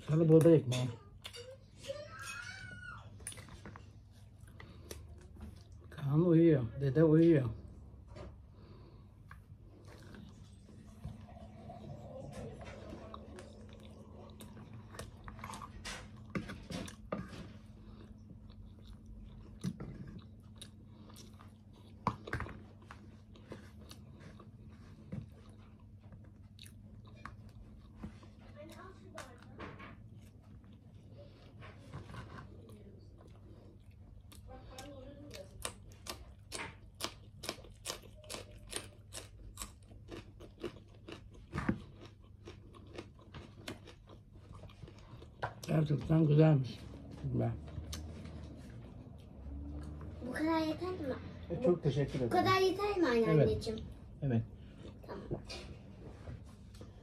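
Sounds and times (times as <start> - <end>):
person chewing food: 0.1 - 6.2, 7.8 - 50.2, 53.9 - 57.0.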